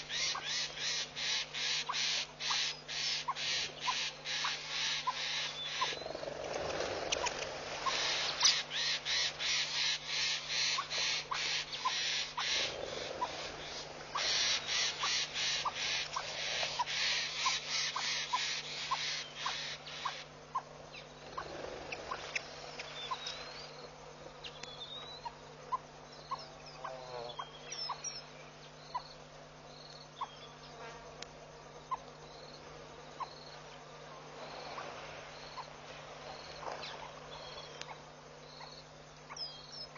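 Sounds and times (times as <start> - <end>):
high insect buzz pulsing: 0.0 - 39.8
faint steady hum: 0.0 - 39.9
small bird chirps: 14.1 - 29.2, 36.8 - 39.9.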